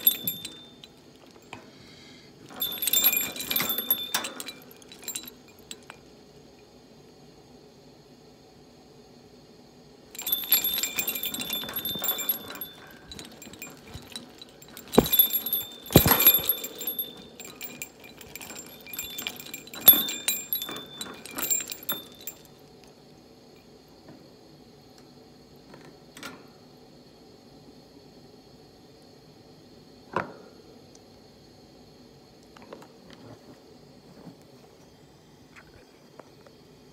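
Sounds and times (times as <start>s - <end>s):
bell and chains jingling: 0.0s - 1.0s, 2.5s - 6.0s, 10.2s - 22.5s.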